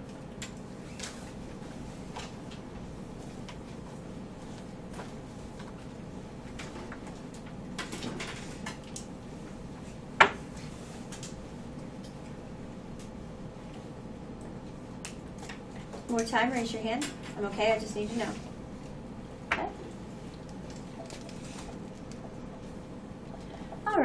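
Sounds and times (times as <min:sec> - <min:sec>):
faint clicks and rustles: 0:20.0 - 0:23.8.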